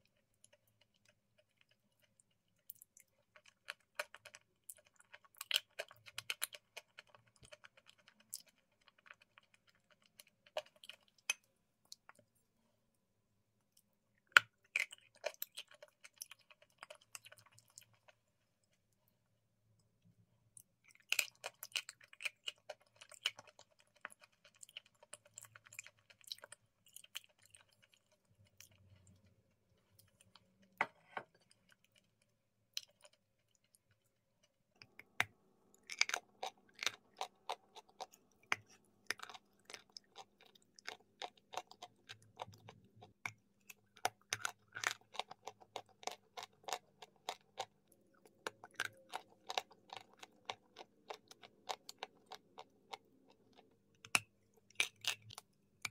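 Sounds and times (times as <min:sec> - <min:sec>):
mouth crunching and chewing: 0:14.2 - 0:18.8, 0:20.6 - 0:34.0, 0:34.8 - 0:55.9.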